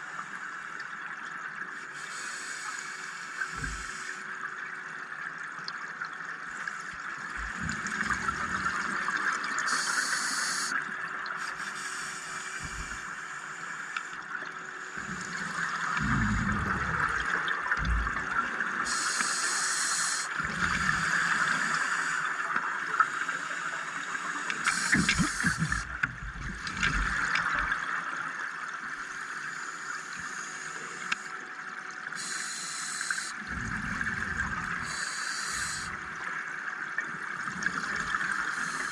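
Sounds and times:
regulator hissing inhalations: 2.0 - 4.2, 9.7 - 10.8, 11.4 - 14.1, 18.9 - 22.3, 23.1 - 25.9, 32.2 - 33.4, 34.8 - 36.0, 38.5 - 38.9
exhaled bubbles gurgling: 7.3 - 10.0, 15.0 - 19.0, 20.4 - 22.8, 24.6 - 28.3, 33.4 - 38.9.

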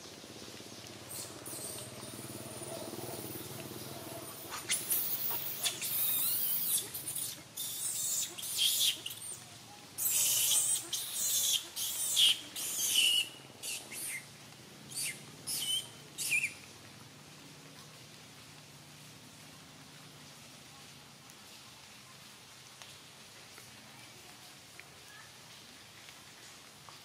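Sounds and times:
macaques squealing: 1.1 - 9.4, 10.0 - 14.3, 14.9 - 16.6.

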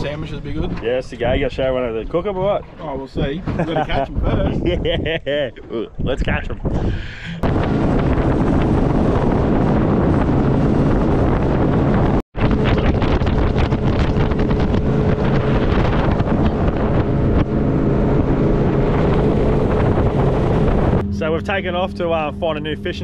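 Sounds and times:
wind buffeting the microphone: 0.0 - 21.1
water rushing past hull: 5.9 - 23.0
motorboat engine running: 6.0 - 23.0.

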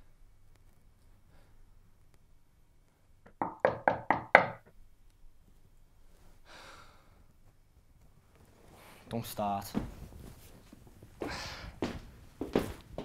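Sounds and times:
knocking on door: 3.4 - 4.7.

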